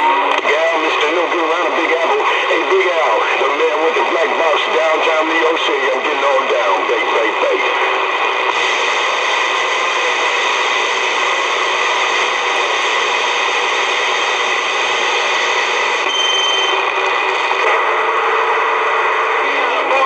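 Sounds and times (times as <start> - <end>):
radio static hiss: 0.0 - 20.0
thin high whistle: 16.0 - 16.8.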